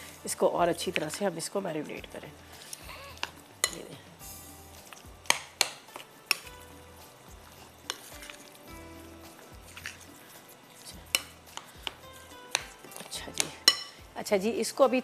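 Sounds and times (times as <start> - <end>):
spoon stirring wet marinade: 0.8 - 3.8, 4.6 - 14.1
spoon clinking on glass bowl: 13.6 - 14.0.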